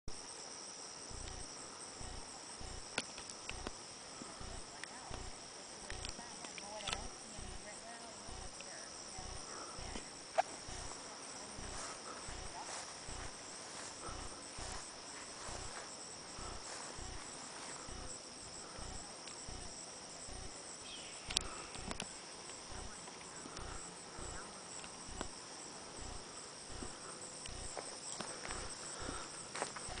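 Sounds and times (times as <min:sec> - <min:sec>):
insects chorus: 0:00.1 - 0:30.0
sharp clicks: 0:01.2 - 0:03.8, 0:04.4 - 0:07.6, 0:18.8 - 0:20.5, 0:21.1 - 0:25.4.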